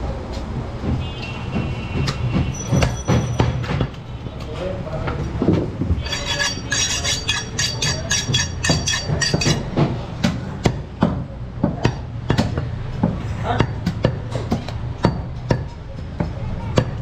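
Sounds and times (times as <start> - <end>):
cleaver chopping meat and bone: 7.5 - 15.7.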